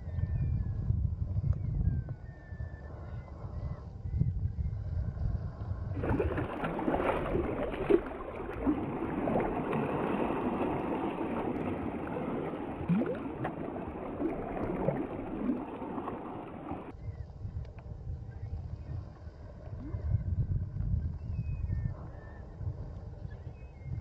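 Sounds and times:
wind rumble on microphone: 0.0s - 24.0s
sea water splashing: 6.0s - 16.9s.

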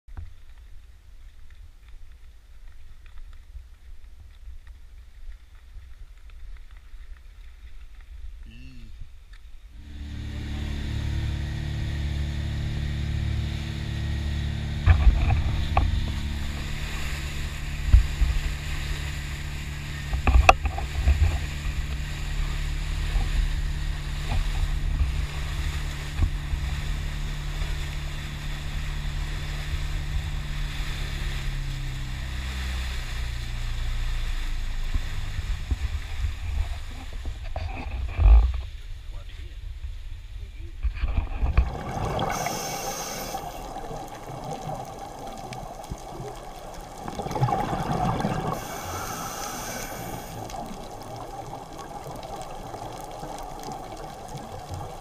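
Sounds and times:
boat engine droning: 9.7s - 38.6s, 41.5s - 55.0s
water rushing along hull: 9.7s - 55.0s.

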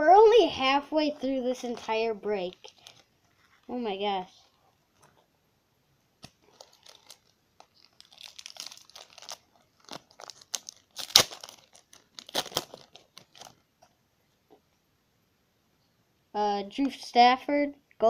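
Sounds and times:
wrapper crinkling and tearing: 1.6s - 3.8s, 6.2s - 13.7s.

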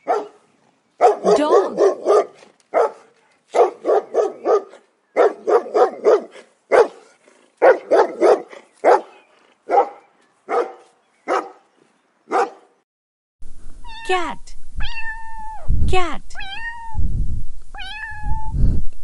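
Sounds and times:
dog barking: 0.0s - 0.4s, 1.0s - 11.7s, 12.3s - 12.8s.

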